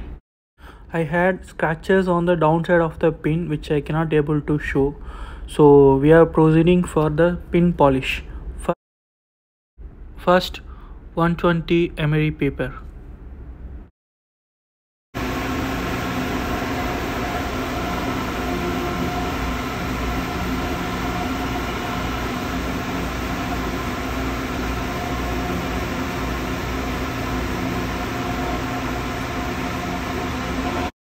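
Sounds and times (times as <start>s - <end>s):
belt polishing tool running: 15.2s - 30.9s
engine room machinery: 15.2s - 31.0s.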